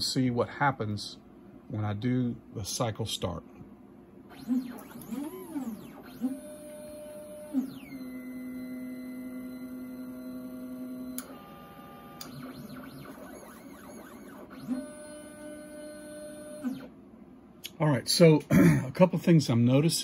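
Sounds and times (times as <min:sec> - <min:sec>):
stepper motors whining: 0:04.3 - 0:16.9.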